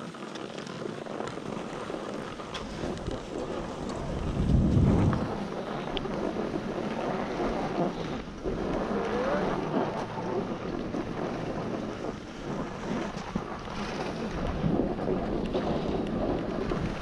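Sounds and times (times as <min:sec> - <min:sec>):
skis scraping over snow: 0:00.0 - 0:17.0
wind on microphone: 0:00.8 - 0:17.0.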